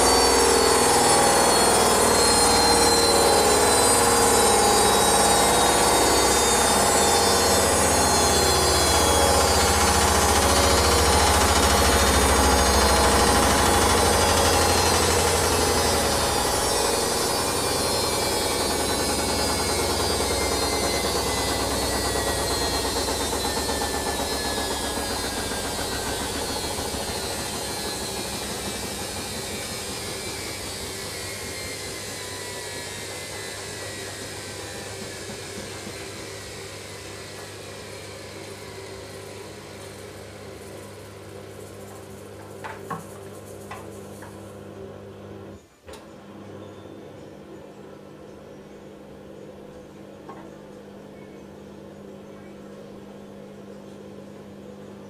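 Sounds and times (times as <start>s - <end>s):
washing machine spin winding down: 0.0s - 55.0s.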